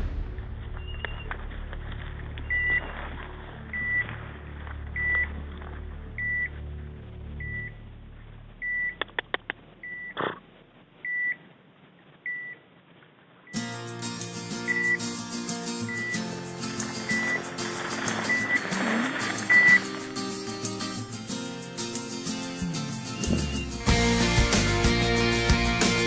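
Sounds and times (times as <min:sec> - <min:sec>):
beeper collar short high beeps: 0:14.7 - 0:15.1, 0:15.9 - 0:16.2, 0:19.4 - 0:19.9.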